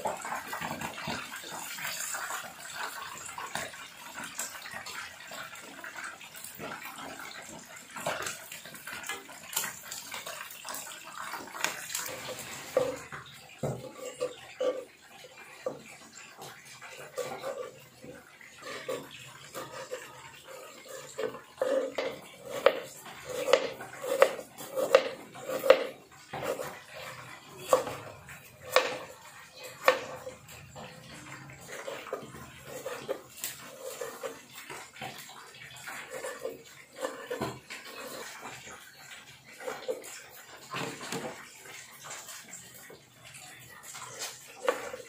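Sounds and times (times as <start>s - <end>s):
knife chopping on cutting board: 21.8s - 26.7s, 28.7s - 29.0s.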